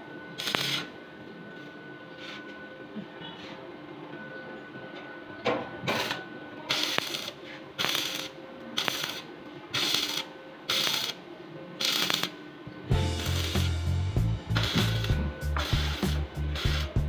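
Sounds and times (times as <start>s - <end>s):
welding arc crackling and hissing: 0.4s - 0.9s, 6.0s - 11.2s, 11.8s - 17.0s.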